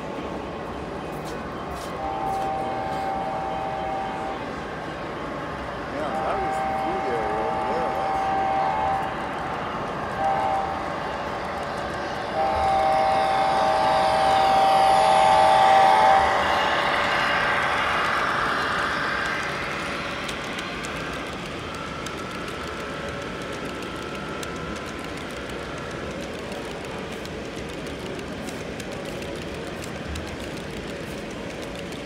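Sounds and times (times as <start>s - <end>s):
diesel engine sound: 0.0s - 32.0s
model train cars running on track: 0.0s - 32.0s
model locomotive horn chord: 1.9s - 4.6s, 6.0s - 18.6s.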